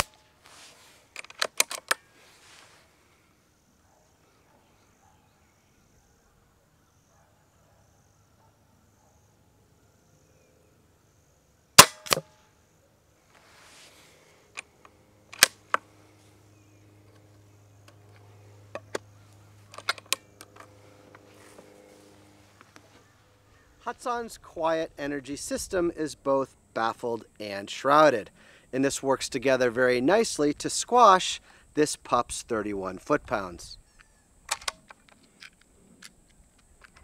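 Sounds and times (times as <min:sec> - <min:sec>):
rifle action metallic clicks: 0:01.2 - 0:02.0, 0:11.8 - 0:12.3, 0:14.6 - 0:15.8, 0:19.7 - 0:20.7, 0:34.0 - 0:37.0
air rifle shot: 0:11.8 - 0:12.3.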